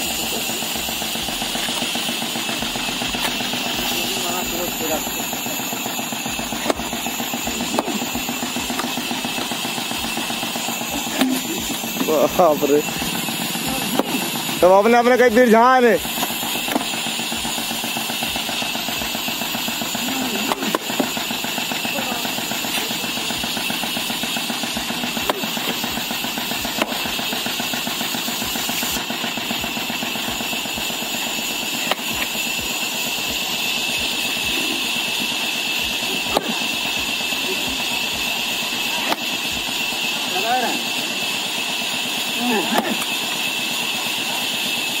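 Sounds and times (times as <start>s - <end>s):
machine drone: 0.0s - 45.0s
axe splitting logs: 5.4s - 12.1s, 13.2s - 14.9s, 16.0s - 37.7s, 38.4s - 40.1s, 41.8s - 43.9s.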